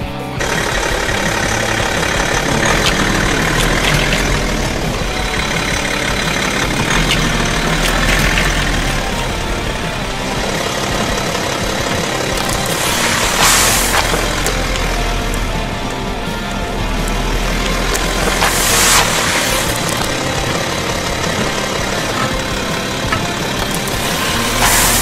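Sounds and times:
car engine idling: 0.0s - 25.0s
tyre noise on asphalt: 0.0s - 25.0s.

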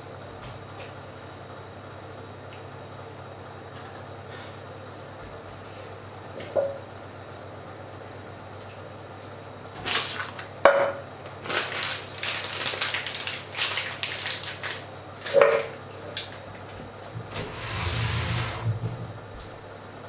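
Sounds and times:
rustling and scraping: 17.1s - 19.2s.

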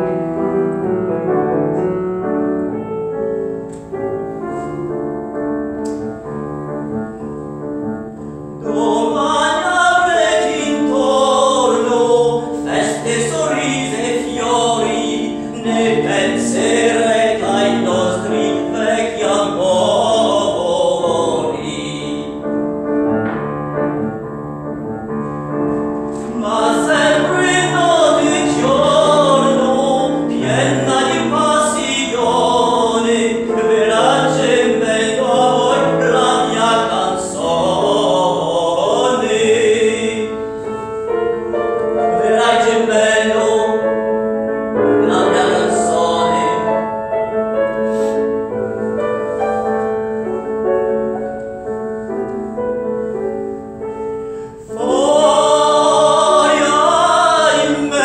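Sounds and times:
piano playing: 0.0s - 58.0s
person singing: 8.6s - 22.6s, 26.2s - 40.4s, 44.9s - 46.9s, 54.7s - 58.0s.

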